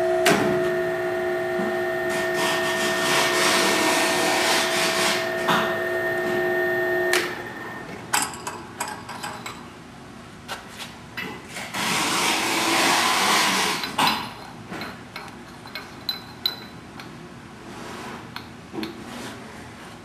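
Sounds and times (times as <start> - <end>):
metal clinks and knocks: 14.1 - 17.2.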